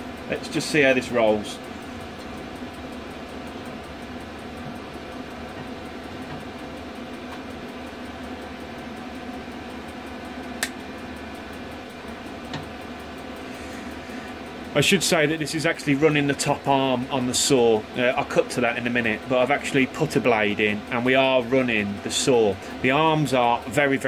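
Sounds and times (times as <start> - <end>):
electric motor humming: 0.0 - 24.0
sharp click: 10.6 - 10.8.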